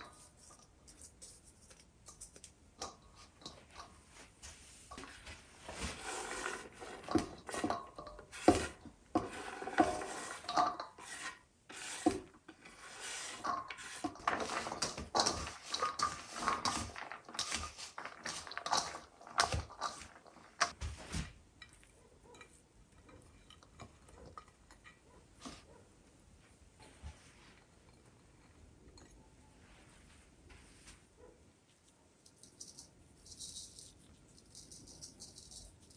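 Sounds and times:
kitchen utensils clattering: 5.8 - 11.2, 11.9 - 20.8.

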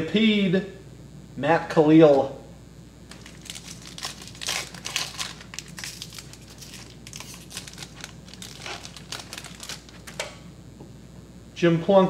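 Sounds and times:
foil wrapper tearing and crinkling: 3.1 - 10.4.

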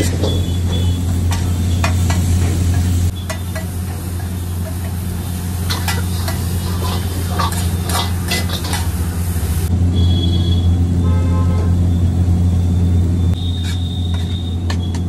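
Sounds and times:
light sizzle: 0.0 - 9.7
metal spatula scraping iron griddle: 5.6 - 9.1, 13.4 - 14.9.

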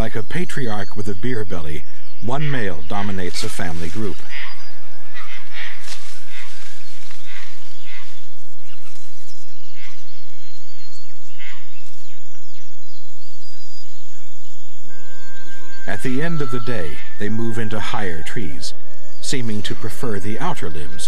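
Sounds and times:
wild animal calls: 2.2 - 12.2.

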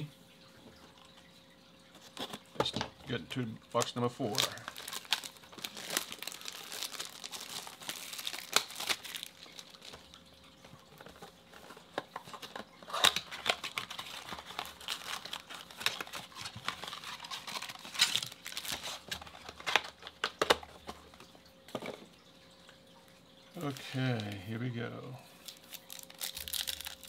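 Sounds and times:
card packs rustling and crinkling: 2.0 - 22.1, 25.2 - 27.0
foil packs tearing: 3.8 - 10.2, 12.3 - 20.6, 25.4 - 27.0.

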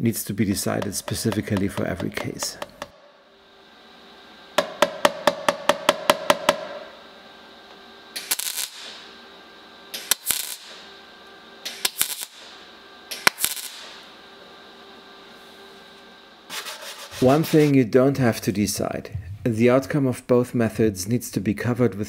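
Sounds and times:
hammer blows on sheet steel: 4.6 - 6.9
crackling tack welding: 8.1 - 9.2, 9.9 - 11.0, 11.6 - 14.2.

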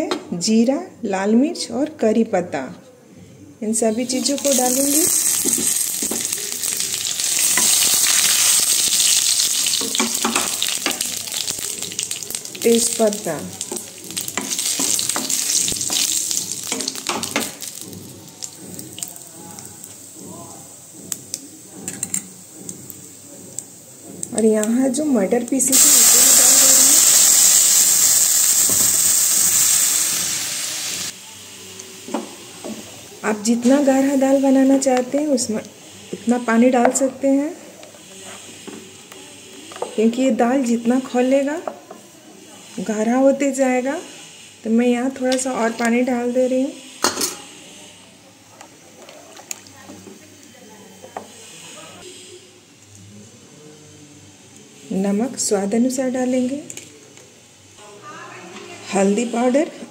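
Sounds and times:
spices sizzling in hot oil: 3.8 - 48.0
wooden spatula stirring: 4.1 - 12.6, 13.6 - 20.2.

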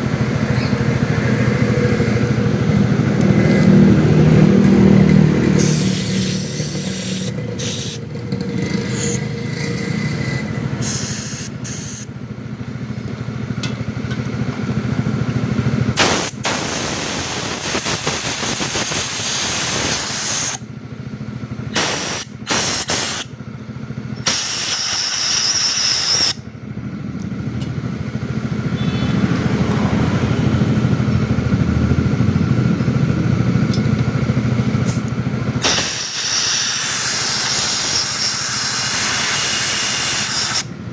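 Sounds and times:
steady low hum: 0.0 - 17.7
aerosol spraying hiss: 21.8 - 23.2, 35.6 - 40.6.

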